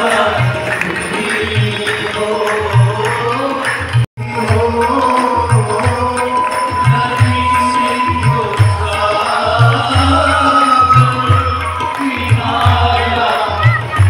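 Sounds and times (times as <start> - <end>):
devotional song over loudspeakers: 0.0 - 14.0
steady drum beat: 0.0 - 14.0.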